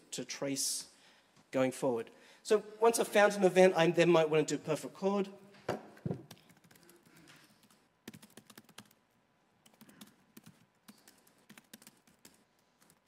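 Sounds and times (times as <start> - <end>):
faint typing on computer keyboard: 6.2 - 13.0.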